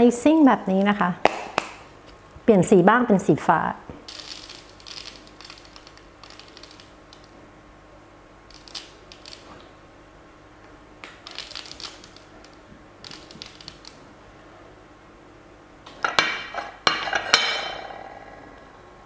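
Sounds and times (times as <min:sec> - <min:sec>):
sprinkles rattling in shaker jar: 0:04.1 - 0:07.3
sprinkles scattering onto paper: 0:04.1 - 0:07.4, 0:08.5 - 0:09.7, 0:11.0 - 0:14.0.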